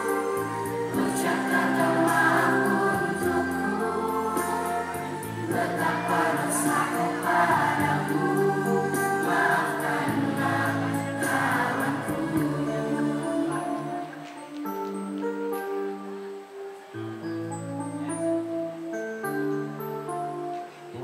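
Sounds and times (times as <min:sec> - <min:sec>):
choir singing held notes: 0:00.0 - 0:15.4
accompanying music with ticking beat: 0:00.0 - 0:15.6.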